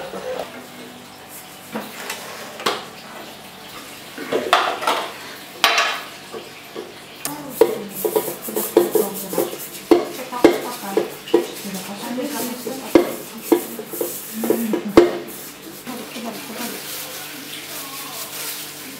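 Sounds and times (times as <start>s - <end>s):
spatula scraping metal bowl: 7.5s - 18.9s
spatula knocking metal bowl: 7.6s - 15.3s.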